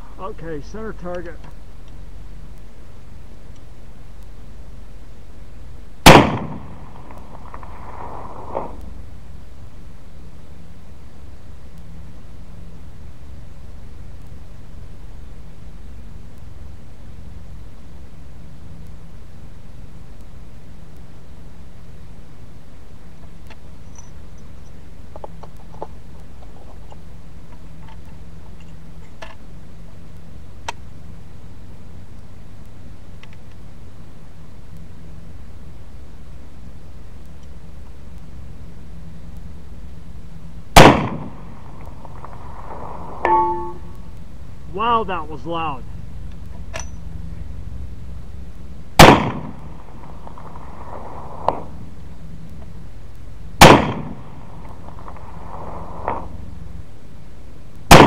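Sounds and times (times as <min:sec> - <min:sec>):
faint hum: 0:00.0 - 0:57.9
low background rumble: 0:00.0 - 0:58.0
bullet striking steel target: 0:06.0 - 0:06.8, 0:40.8 - 0:41.4, 0:43.2 - 0:43.9, 0:49.0 - 0:49.6, 0:53.6 - 0:54.2
rifle shot: 0:06.0 - 0:08.8, 0:40.8 - 0:41.5, 0:49.0 - 0:51.7, 0:53.6 - 0:54.4.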